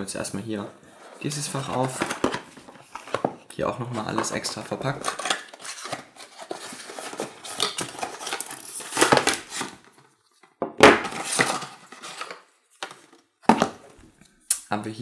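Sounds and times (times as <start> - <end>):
cardboard scraping and rustling: 0.9 - 3.4, 4.0 - 10.0, 11.0 - 13.9.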